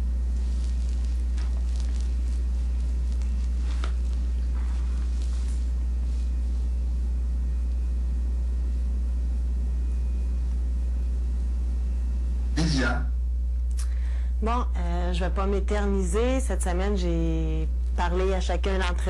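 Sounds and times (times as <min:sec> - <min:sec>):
faint rustles: 0:00.0 - 0:07.2
steady low hum: 0:00.0 - 0:19.0.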